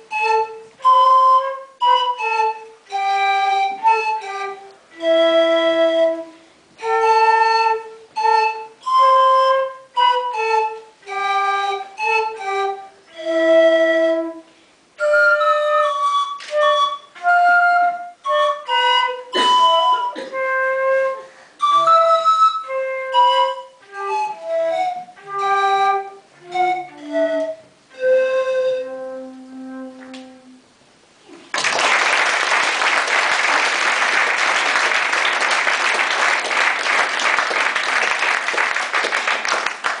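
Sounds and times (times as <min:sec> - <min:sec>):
flute playing slow melody: 0:00.0 - 0:30.6
audience applause: 0:31.4 - 0:40.0.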